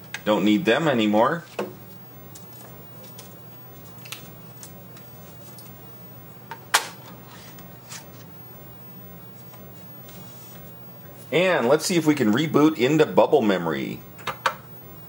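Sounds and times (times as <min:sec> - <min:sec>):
computer humming: 0:00.0 - 0:15.0.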